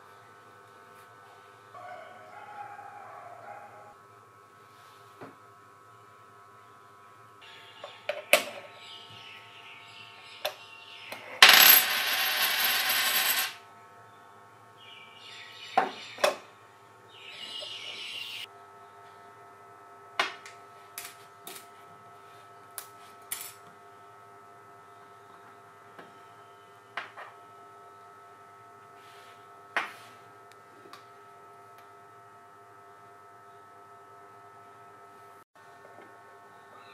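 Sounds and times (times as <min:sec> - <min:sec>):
coin clattering in plastic tube: 0:11.4 - 0:13.6.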